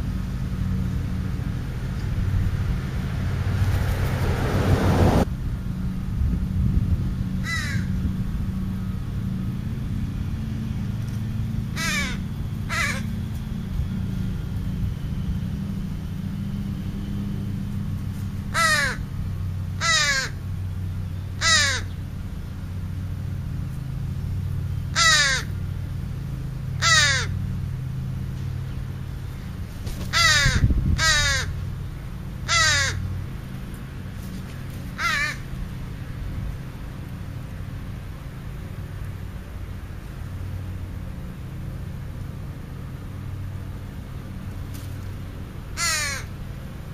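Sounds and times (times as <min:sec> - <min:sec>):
low steady rumble: 0:00.0 - 0:46.9
crows cawing: 0:07.4 - 0:08.0, 0:11.7 - 0:13.2, 0:18.5 - 0:19.1, 0:19.8 - 0:20.4, 0:21.4 - 0:22.0, 0:24.9 - 0:25.6, 0:26.8 - 0:27.4, 0:30.1 - 0:31.6, 0:32.4 - 0:33.1, 0:34.9 - 0:35.5, 0:45.8 - 0:46.4.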